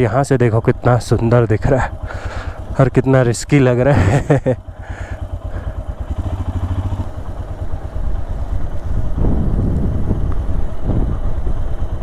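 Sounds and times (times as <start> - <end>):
motorcycle engine running: 0.0 - 12.0
wind buffeting microphone: 7.9 - 12.0.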